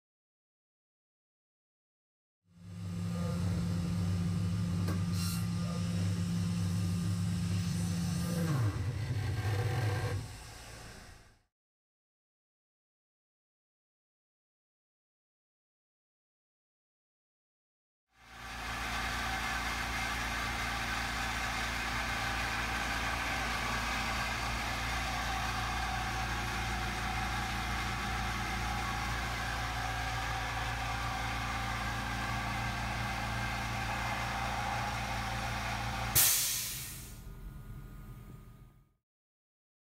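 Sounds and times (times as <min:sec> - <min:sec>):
vacuum motor humming and whining: 0:02.6 - 0:11.2, 0:18.3 - 0:36.3.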